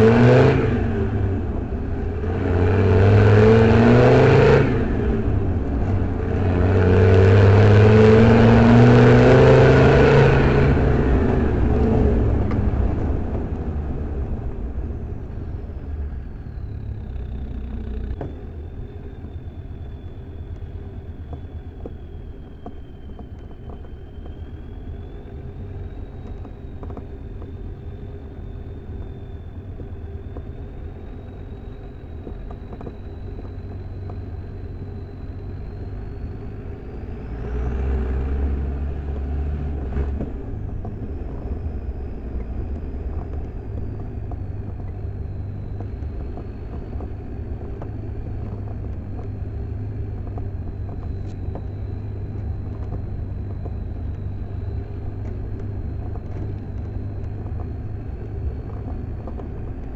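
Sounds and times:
diesel engine low rumble: 0.0s - 59.9s
faint high whine: 0.0s - 59.9s.

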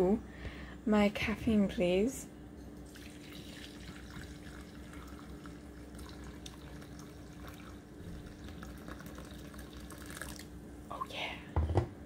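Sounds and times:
steady hum: 0.0s - 12.0s
coffee pouring into a mug: 2.8s - 10.6s.

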